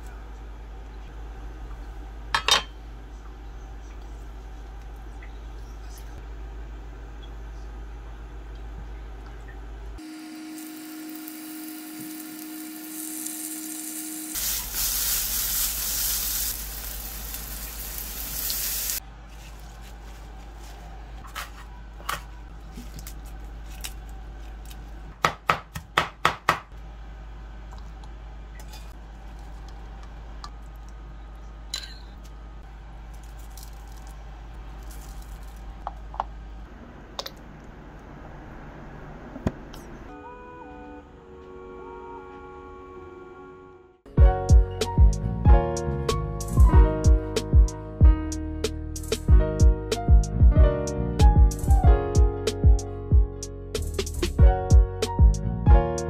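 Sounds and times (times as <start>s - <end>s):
oil sizzling: 10.0s - 19.0s
knife chopping on cutting board: 25.2s - 26.7s.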